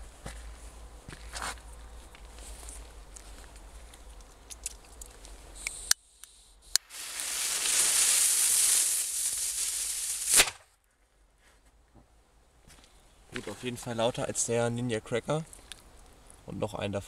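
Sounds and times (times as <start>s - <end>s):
fuse hissing: 5.6s - 10.6s
firecracker bang: 6.8s - 10.7s.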